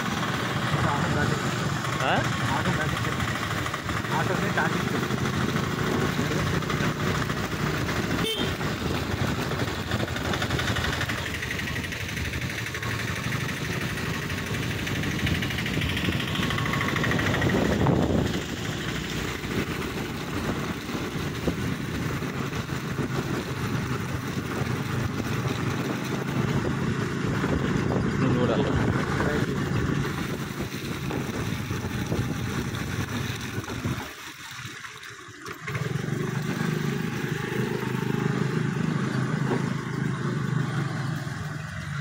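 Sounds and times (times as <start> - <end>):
engine and tyre noise on wet road: 0.0 - 42.0.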